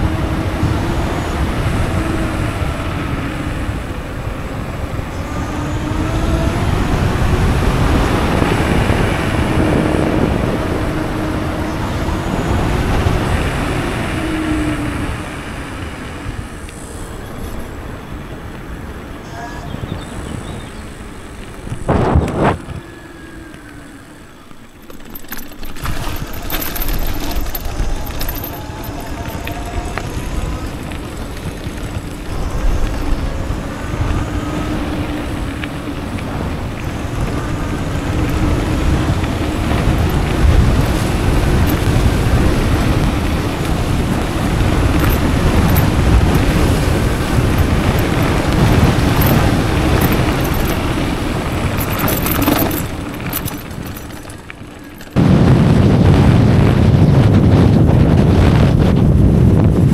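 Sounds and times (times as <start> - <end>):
wind on microphone: 0.0 - 59.9
tyre rumble: 24.6 - 59.9.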